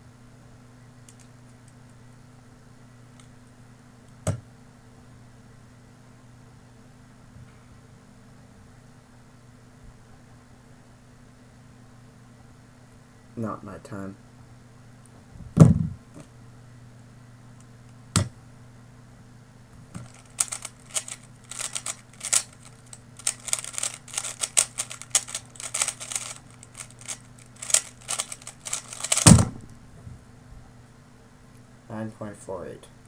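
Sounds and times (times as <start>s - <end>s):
plastic cube clicking: 20.0s - 29.4s
cube thumping down: 27.0s - 29.6s.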